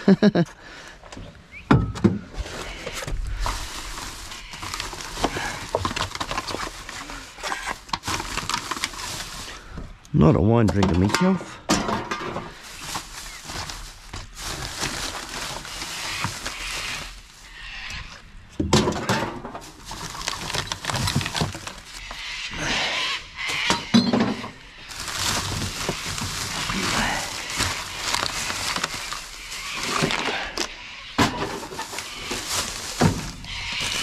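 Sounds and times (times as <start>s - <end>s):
plastic bags rustling: 2.3s - 10.0s, 12.0s - 18.2s, 18.8s - 22.2s, 23.6s - 34.0s
bottles and cans clinking: 23.7s - 24.5s.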